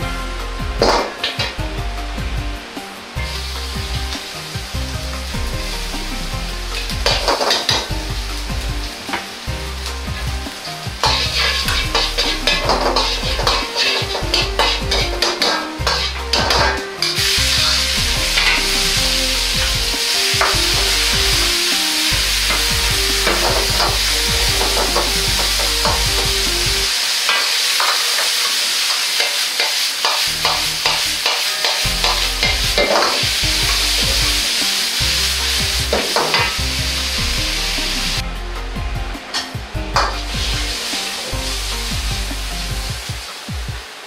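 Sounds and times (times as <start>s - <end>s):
food sizzling in a wok: 0.0s - 44.0s
metal ladle scraping a wok: 9.0s - 38.2s.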